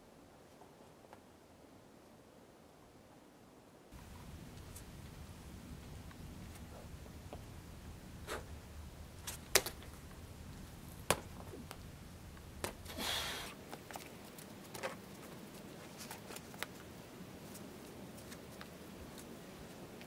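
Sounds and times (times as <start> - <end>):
hissing scrape on rock: 8.2 - 8.6, 12.8 - 13.6.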